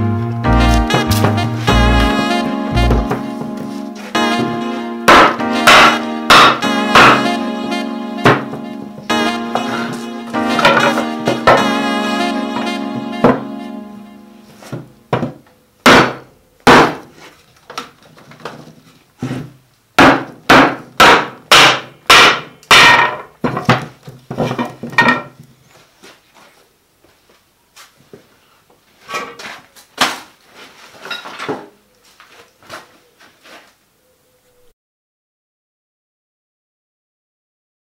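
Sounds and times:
knocks on iron holdfast: 0:20.0 - 0:23.2.

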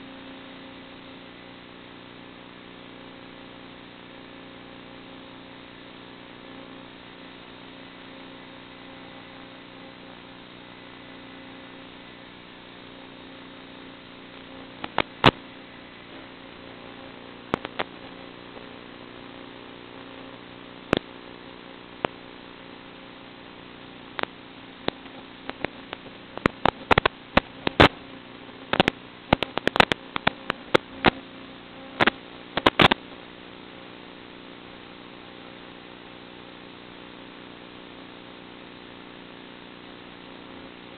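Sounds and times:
electrical hum and static: 0:00.0 - 0:40.9
sharp clicks and pops: 0:14.3 - 0:15.4, 0:17.4 - 0:18.7, 0:20.9 - 0:21.2, 0:22.0 - 0:22.2, 0:24.1 - 0:28.0, 0:28.7 - 0:31.2, 0:32.0 - 0:33.0.

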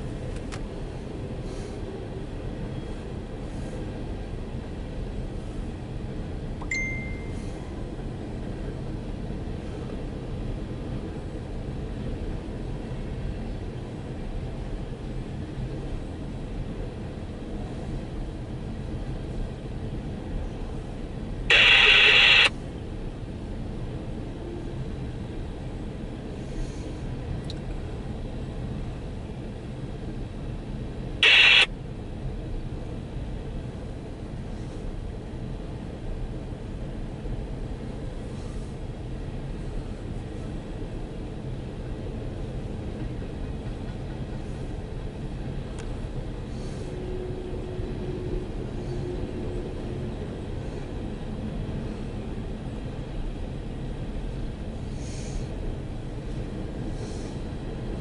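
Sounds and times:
brief high ring: 0:06.6 - 0:07.4
train cars rumbling past: 0:37.3 - 0:58.0.

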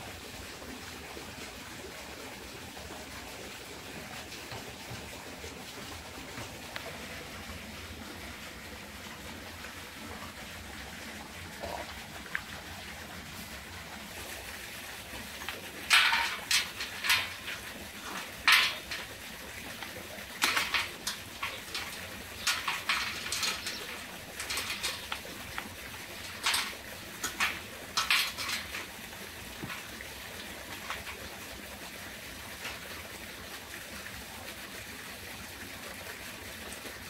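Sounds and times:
metal clamps clanking: 0:15.5 - 0:19.2, 0:20.4 - 0:28.9.

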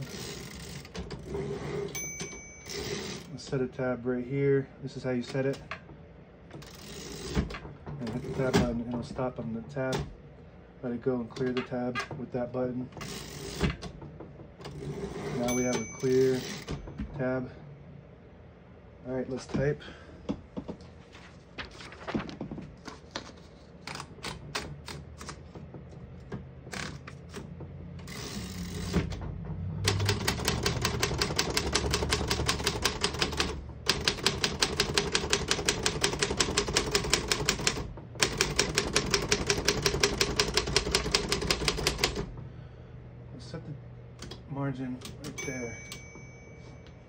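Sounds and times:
typewriter keystrokes clacking: 0:29.8 - 0:42.3.

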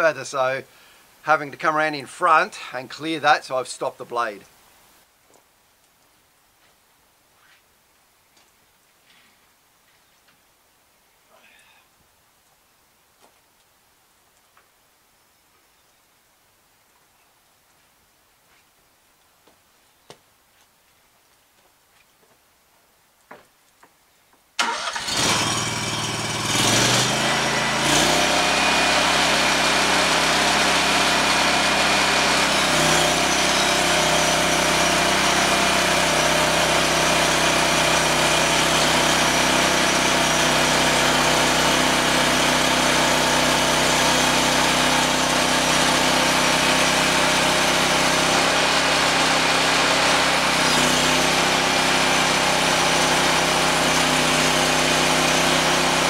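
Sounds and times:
petrol engine starting and running: 0:24.6 - 0:56.0.

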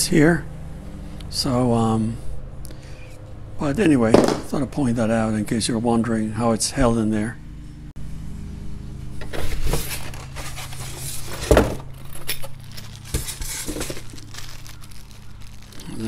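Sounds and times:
steady low hum: 0:00.0 - 0:16.0
packaging rustling: 0:09.4 - 0:16.0
small hard parts clinking: 0:10.1 - 0:16.0.

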